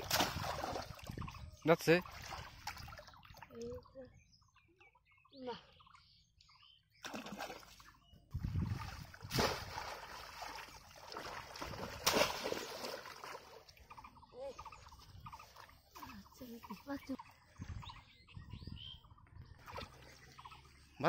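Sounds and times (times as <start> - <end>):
fish trap slammed into water: 0.0 - 0.8, 9.2 - 10.0, 11.7 - 12.9
water splashing and sloshing: 0.0 - 4.0, 7.0 - 17.9, 19.2 - 21.0.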